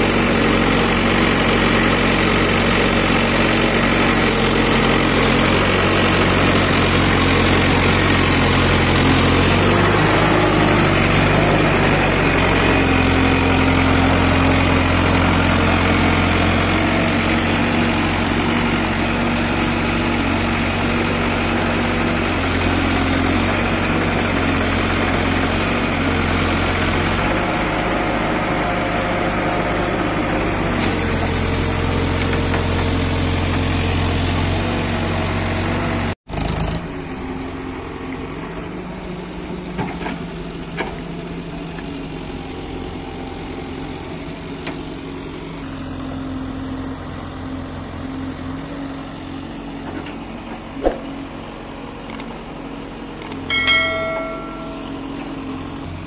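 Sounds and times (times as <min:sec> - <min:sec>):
diesel engine running: 0:00.0 - 0:56.0
short ringing tone: 0:53.4 - 0:55.7.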